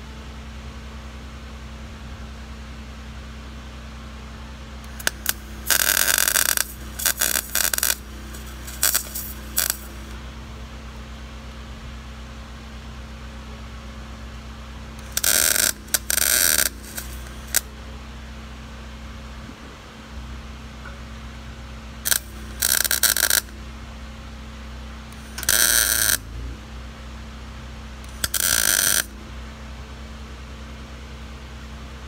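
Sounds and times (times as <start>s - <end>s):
steady low hum: 0.0s - 32.0s
welding arc crackling: 4.8s - 10.2s, 15.0s - 17.7s, 22.0s - 23.6s, 25.2s - 26.3s, 28.1s - 29.2s.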